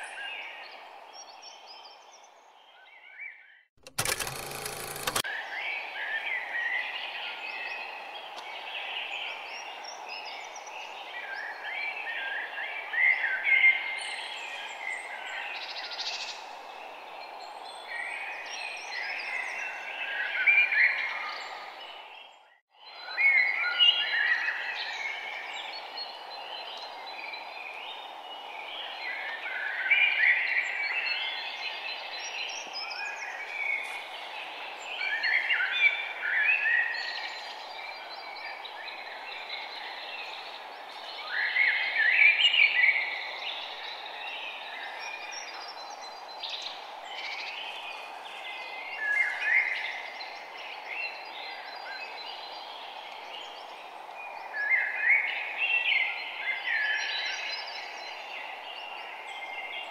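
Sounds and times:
steady outdoor hiss: 0:04.0 - 0:22.3, 0:22.9 - 0:59.9.

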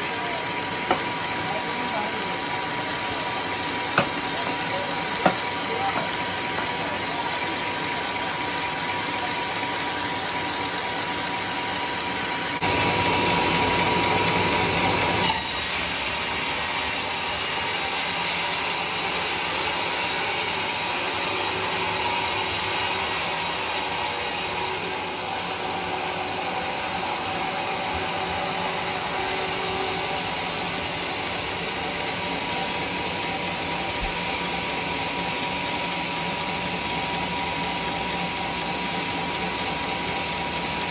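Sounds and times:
band sawmill cutting log: 0:00.0 - 0:40.9.

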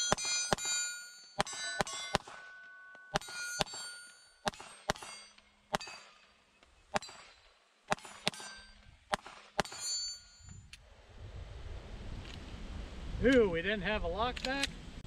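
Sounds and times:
short metallic ring: 0:00.0 - 0:08.9, 0:09.6 - 0:10.7
pistol shots: 0:01.4 - 0:02.5, 0:03.1 - 0:06.2, 0:06.9 - 0:10.0.

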